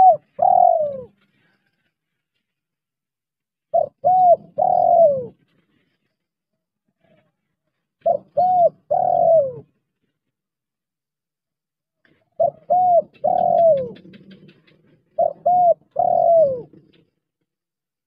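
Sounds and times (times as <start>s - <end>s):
dove cooing: 0.0s - 1.2s, 3.7s - 5.4s, 8.0s - 9.8s, 12.4s - 17.1s.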